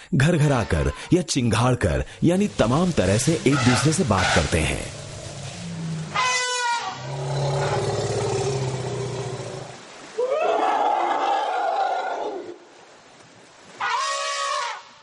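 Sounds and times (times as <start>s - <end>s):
low elephant rumble: 2.6s - 9.8s
elephant calls: 3.3s - 9.8s.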